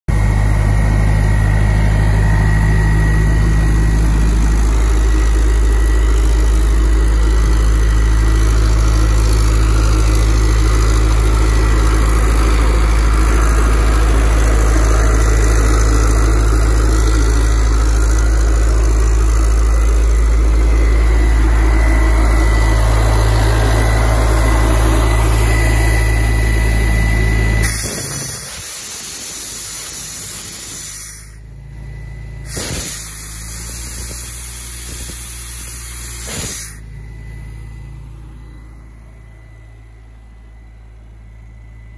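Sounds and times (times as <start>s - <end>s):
air compressor engine hum: 0.1s - 41.9s
thin steady whine: 0.1s - 41.9s
compressed air hissing: 27.6s - 31.4s, 32.4s - 36.8s.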